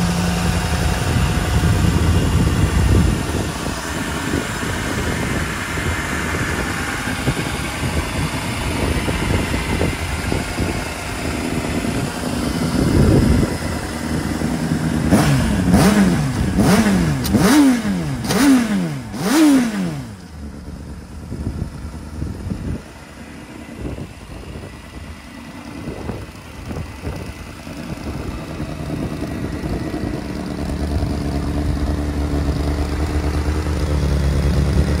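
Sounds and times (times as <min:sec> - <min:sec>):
motorcycle engine revving: 0:00.0 - 0:35.0.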